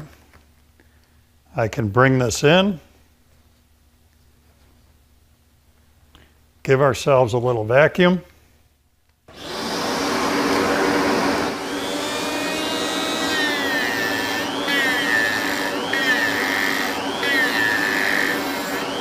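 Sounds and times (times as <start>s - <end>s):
die grinder whining: 9.3s - 19.0s
shop vacuum running: 9.3s - 19.0s.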